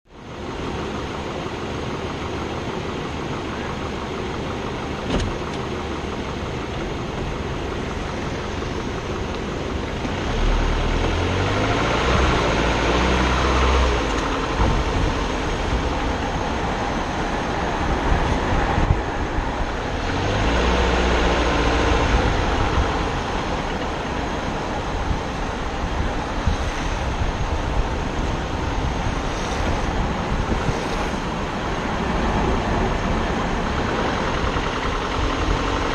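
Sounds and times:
longboard wheels rolling on asphalt: 0.1s - 35.9s
wind rushing: 11.8s - 23.6s, 24.6s - 35.9s.

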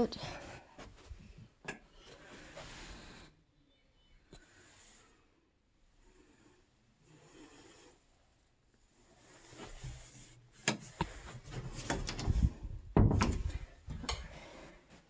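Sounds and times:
closet door clicks and knocks: 11.8s - 14.2s.

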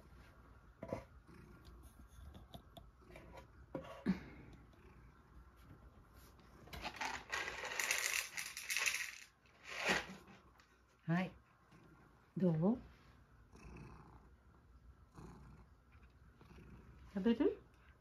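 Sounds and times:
cat kibble rattling as poured: 6.7s - 10.1s.

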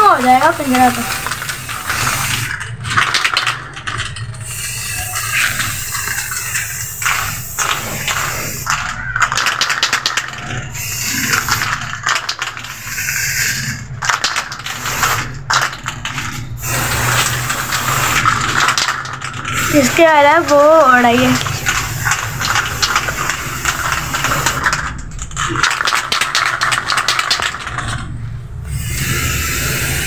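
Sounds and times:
spray can hissing: 0.0s - 2.6s, 4.4s - 15.7s, 16.6s - 24.9s, 28.7s - 30.0s.

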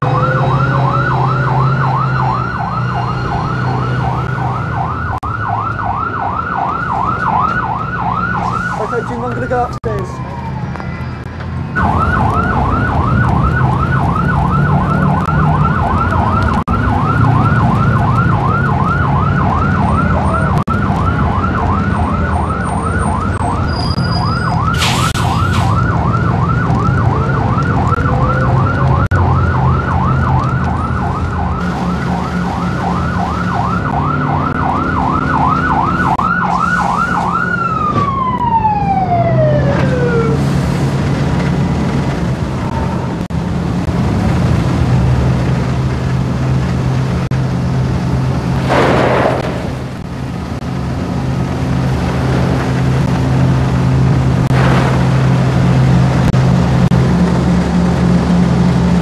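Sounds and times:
fire truck siren warbling: 0.0s - 59.0s
truck engine rumble: 0.0s - 59.0s.

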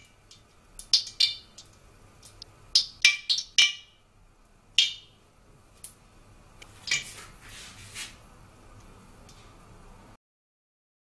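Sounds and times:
water popping in hot oil: 0.0s - 6.0s, 6.6s - 7.4s.

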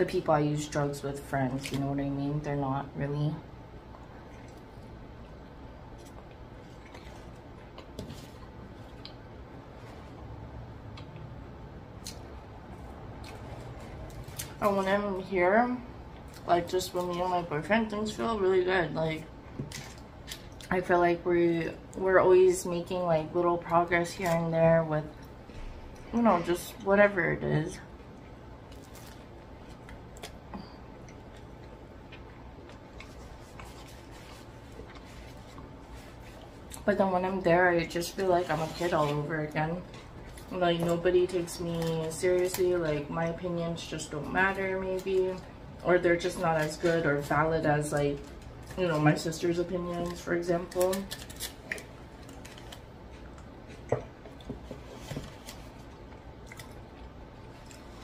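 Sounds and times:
low steady hum: 0.0s - 58.0s
chewing with soft crunches: 3.8s - 14.6s, 27.8s - 36.9s, 51.2s - 58.0s.

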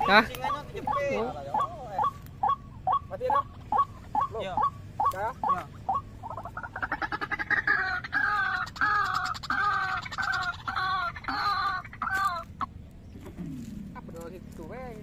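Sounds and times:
waterhen calling: 0.0s - 13.8s.

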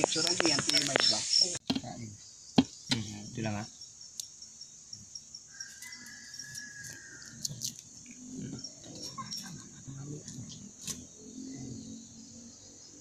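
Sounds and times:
cricket chirping: 0.0s - 13.0s.

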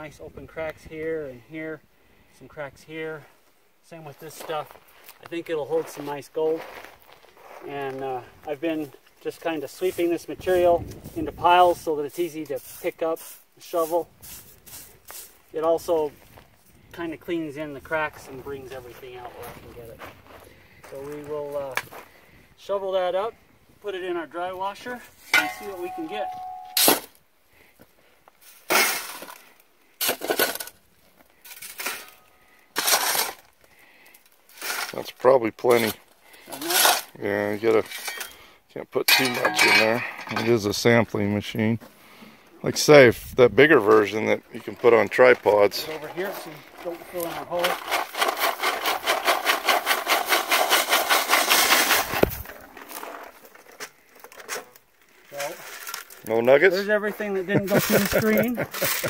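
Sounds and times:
shovel scraping gravelly sand: 9.4s - 16.3s, 25.1s - 27.1s, 28.4s - 30.8s, 31.4s - 33.6s, 34.4s - 38.4s, 44.0s - 53.8s, 56.8s - 59.0s
gritty crunches on metal screen: 28.6s - 38.4s, 44.9s - 56.4s
gravel rattling over metal screen: 44.5s - 53.8s, 57.6s - 59.0s.

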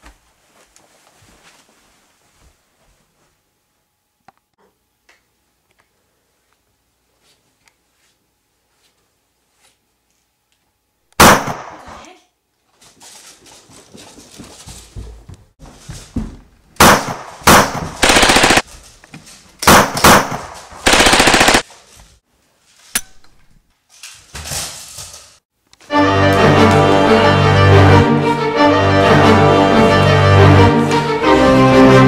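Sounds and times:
single gunshots: 11.2s - 12.0s, 16.8s - 18.6s, 19.6s - 21.6s
automatic gunfire bursts: 16.8s - 18.6s, 19.6s - 21.6s.

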